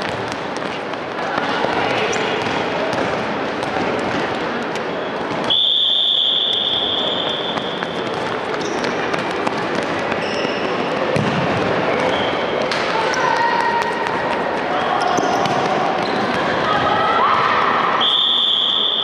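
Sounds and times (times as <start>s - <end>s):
ball bouncing: 0.0s - 4.4s, 5.2s - 5.6s, 7.4s - 14.4s
footsteps on hard court: 0.0s - 5.5s, 7.1s - 16.5s
whistle long blast: 5.5s - 7.5s, 18.0s - 19.0s
shoe squeaks: 6.3s - 9.2s, 10.1s - 11.0s, 11.9s - 13.4s, 14.8s - 16.4s.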